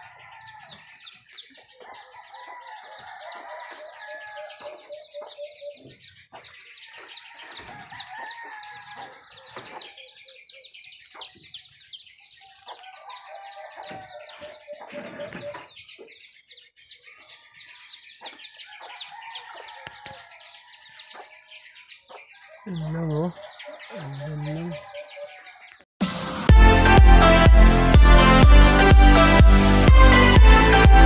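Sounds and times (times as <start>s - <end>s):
birds chirping: 0.0s - 25.9s
low rapid bird clucking: 12.7s - 16.4s.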